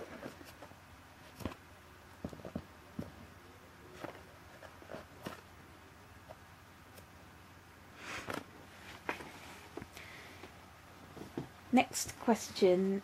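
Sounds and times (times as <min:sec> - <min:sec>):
soft taps and rustles: 0:00.0 - 0:05.5, 0:08.2 - 0:11.6.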